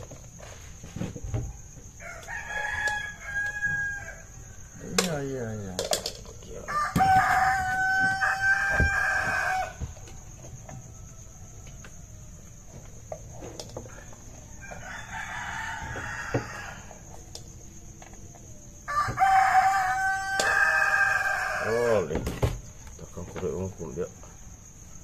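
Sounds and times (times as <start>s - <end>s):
rooster crowing: 1.6s - 4.8s, 6.5s - 12.7s, 13.9s - 17.1s, 18.8s - 22.2s.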